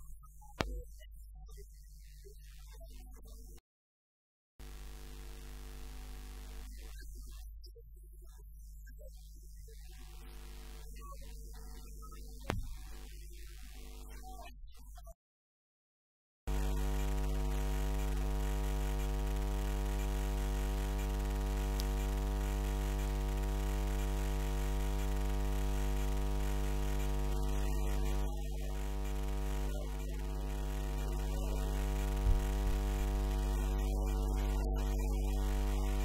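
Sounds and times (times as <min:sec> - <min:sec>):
electrical mains hum: 0:16.5 - 0:36.0.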